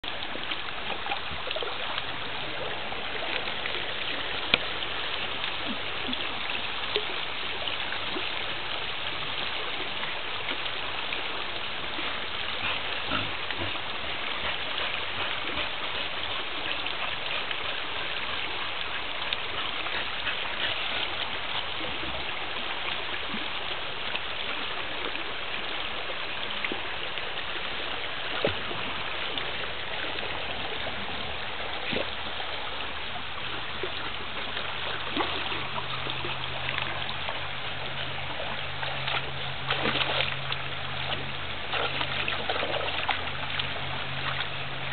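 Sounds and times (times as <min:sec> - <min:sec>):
creek rushing over rock: 0:00.0 - 0:44.9
dog splashing through water: 0:33.7 - 0:44.9.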